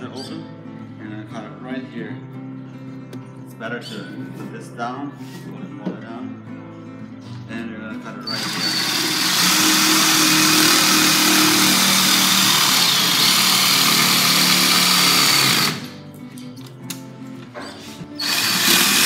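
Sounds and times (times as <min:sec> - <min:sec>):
jigsaw cutting rubber: 0:08.3 - 0:15.9, 0:18.2 - 0:19.0.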